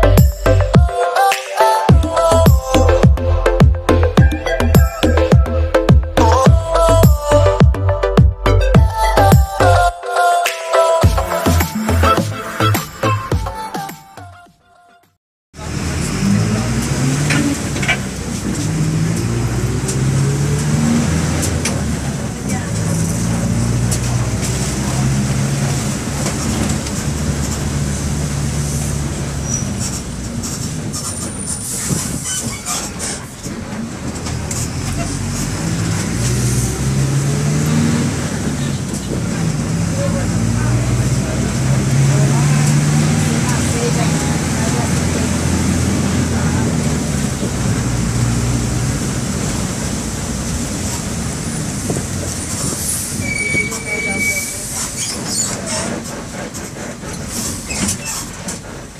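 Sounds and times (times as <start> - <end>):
bus diesel engine drone: 0.0 - 0.9, 1.9 - 9.9, 11.0 - 13.5, 15.6 - 58.9
high squeaks: 29.4 - 33.4, 52.5 - 56.1
high steady squeal: 52.8 - 55.9.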